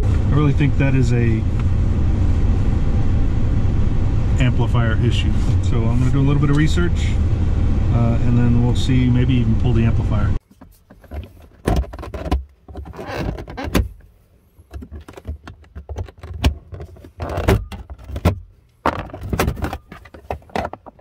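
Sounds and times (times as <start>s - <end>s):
plastic scraping and rattling: 10.4s - 21.0s.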